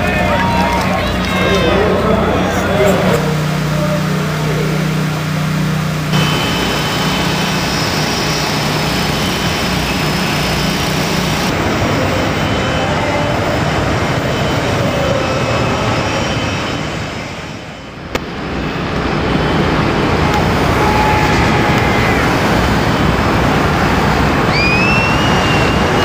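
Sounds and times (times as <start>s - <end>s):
steady loud roar: 0.0s - 17.2s.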